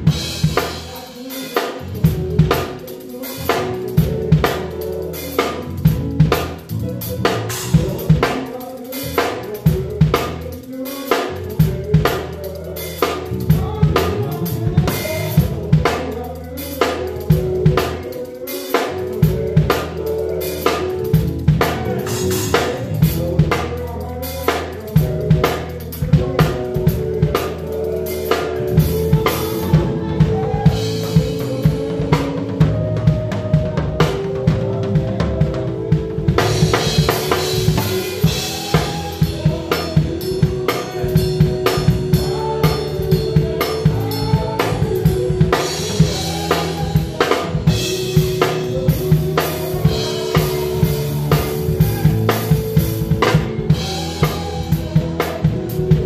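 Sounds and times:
keyboard chords: 0.0 - 56.0
live band playing gospel: 0.0 - 56.0
drum kit hits: 18.8 - 56.0.

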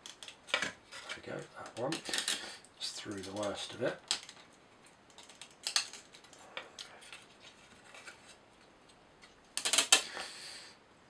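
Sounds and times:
wooden parts clicking into slots: 0.0 - 4.5, 5.1 - 7.2, 9.6 - 10.1.

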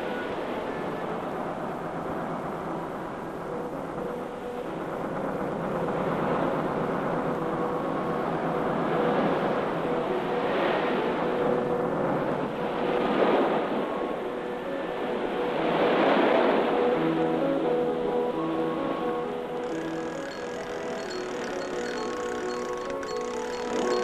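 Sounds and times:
motorboat engine running: 19.4 - 24.0.

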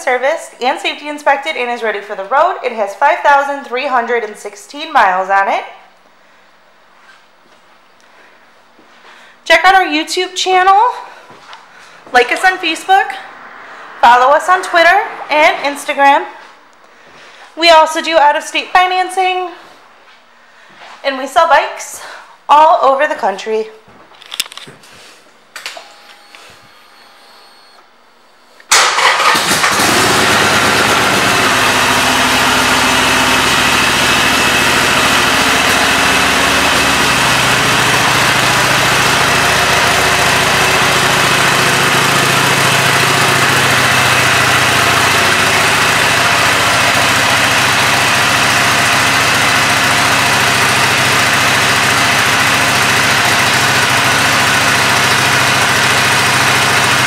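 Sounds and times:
motorcycle engine starting and idling: 28.7 - 57.0.

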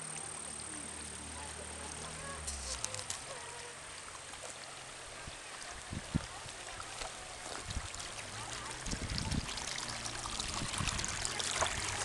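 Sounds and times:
wind rumbling on microphone: 5.2 - 12.0.

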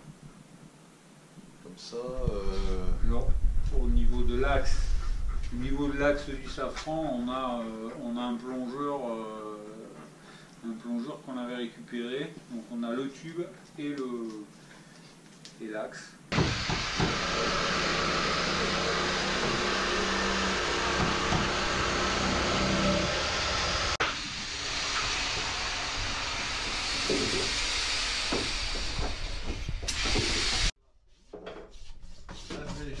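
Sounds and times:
shop vacuum running: 16.4 - 30.7.

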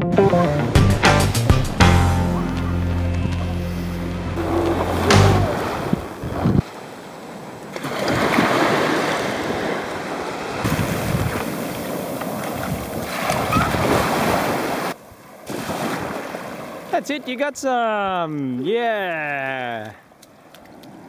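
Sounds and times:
wind gusting on microphone: 4.3 - 6.8, 9.3 - 14.8
small waves washing on sand: 4.4 - 17.5.

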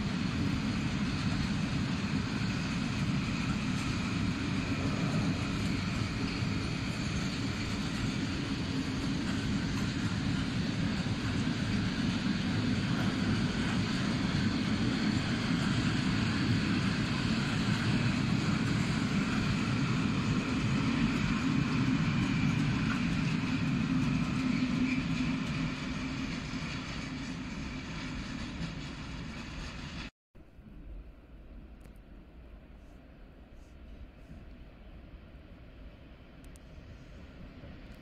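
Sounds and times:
train wheels rumbling on rails: 0.0 - 30.1.

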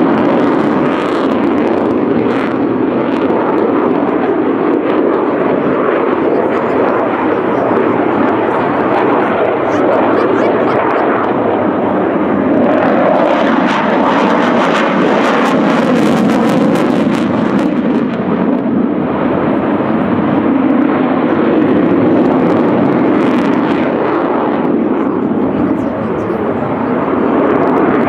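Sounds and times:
jet roar with crackle: 0.0 - 28.0.

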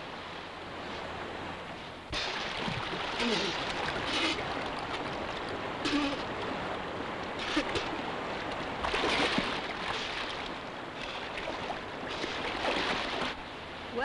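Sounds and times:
fast river rushing: 0.0 - 14.0
water splashing: 2.1 - 14.0.

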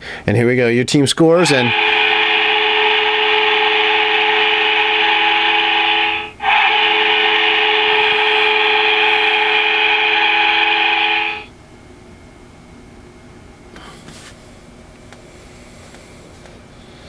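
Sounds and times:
goal horn blast: 1.4 - 11.5.

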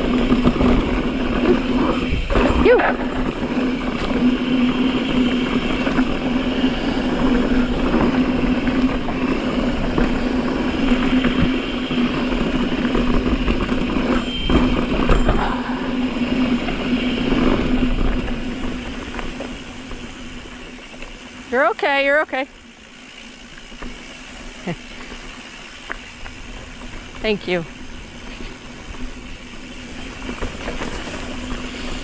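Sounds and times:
wind rushing over microphone: 0.0 - 20.5
tyres rolling over dirt and rock: 0.0 - 32.0.

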